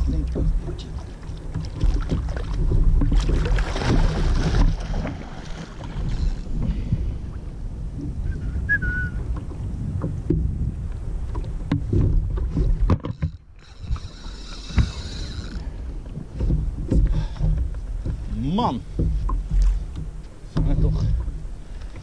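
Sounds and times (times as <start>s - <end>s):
water lapping against kayak hull: 0.0s - 22.0s
wind buffeting microphone: 0.0s - 22.0s
fishing reel knocks and clicks: 13.0s - 15.7s.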